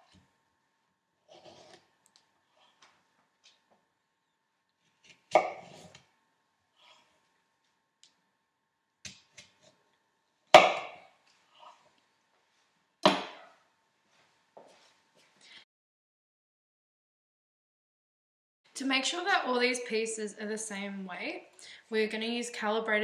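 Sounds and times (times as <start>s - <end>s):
knife chopping on wooden board: 10.6s - 11.0s, 13.0s - 13.5s.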